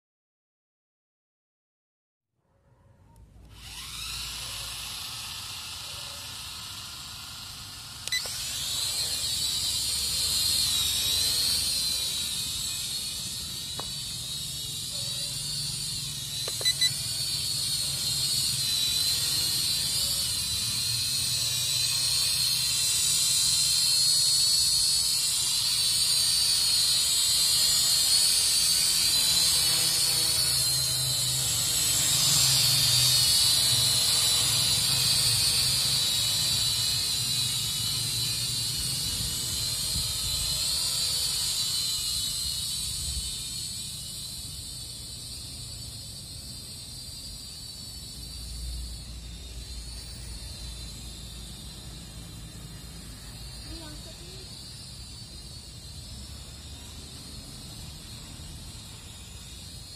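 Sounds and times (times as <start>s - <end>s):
drone motors whining: 3.1s - 59.9s.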